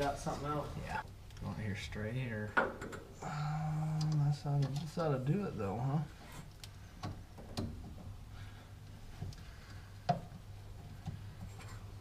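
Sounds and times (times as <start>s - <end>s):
low steady hum: 0.0s - 12.0s.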